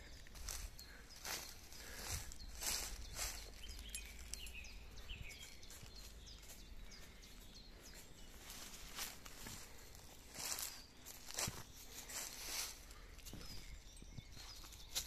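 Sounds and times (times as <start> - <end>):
footsteps on dry leaves: 0.0 - 13.8
small birds chirping: 0.0 - 15.0.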